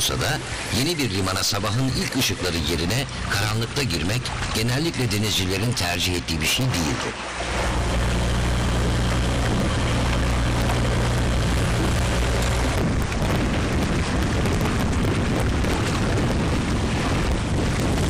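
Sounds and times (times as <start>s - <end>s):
steady low hum: 0.0s - 18.0s
water rushing: 0.0s - 18.0s
wind buffeting microphone: 7.4s - 18.0s.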